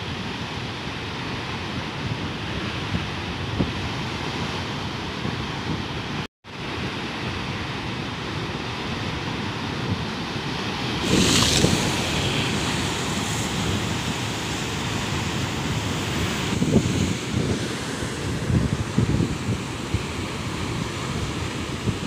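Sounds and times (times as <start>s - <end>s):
wind on microphone: 0.0s - 22.0s
surf crashing on rocks: 6.6s - 22.0s.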